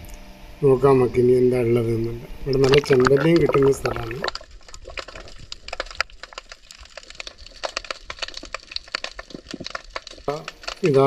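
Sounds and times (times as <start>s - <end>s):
underwater clicks and crackles: 2.2s - 11.0s.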